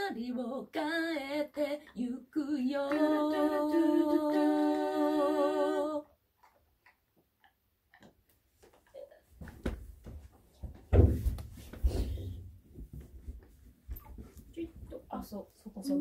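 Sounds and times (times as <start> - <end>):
women singing a cappella chord: 0.0 - 6.1
low thumps on a sofa: 9.4 - 14.9.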